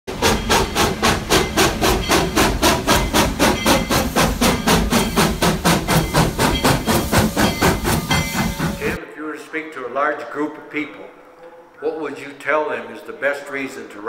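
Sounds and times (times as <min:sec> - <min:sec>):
steam locomotive chuffing: 0:00.1 - 0:09.0.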